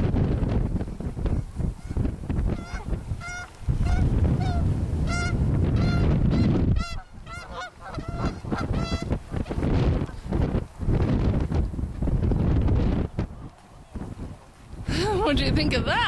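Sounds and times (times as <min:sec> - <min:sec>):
geese honking: 0:01.8 - 0:09.3.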